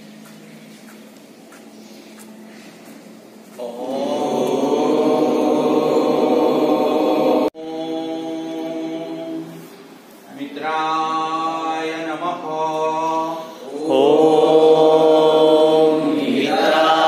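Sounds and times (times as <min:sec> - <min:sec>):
voices chanting held tones: 0:03.5 - 0:17.0.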